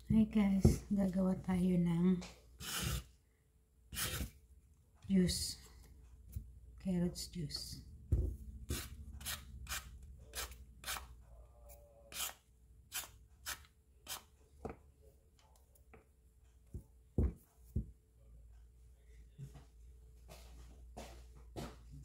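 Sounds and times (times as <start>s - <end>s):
peeler scraping carrot: 2.6s - 3.1s, 3.9s - 4.3s, 12.1s - 14.3s.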